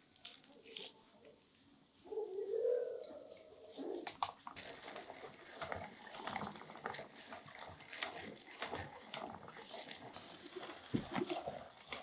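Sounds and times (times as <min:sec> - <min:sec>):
meat grinder crackling: 0:04.0 - 0:12.0.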